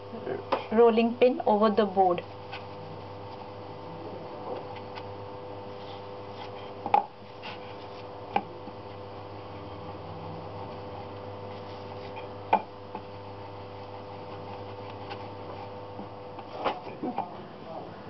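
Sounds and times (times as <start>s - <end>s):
background hum: 0.0s - 18.0s
rolling pin on wooden board: 11.5s - 17.3s.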